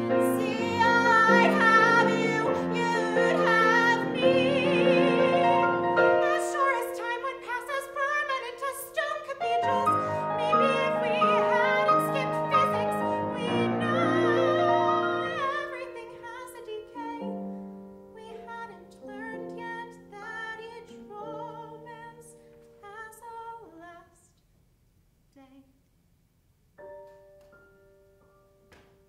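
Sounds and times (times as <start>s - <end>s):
woman singing with vibrato: 0.0s - 17.4s
grand piano accompaniment: 0.0s - 22.8s, 26.8s - 29.0s.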